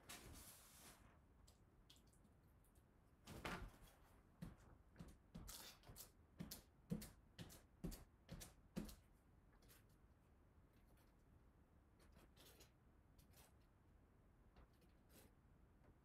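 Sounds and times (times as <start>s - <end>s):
trowel scraping paint on wall: 12.0s - 13.6s.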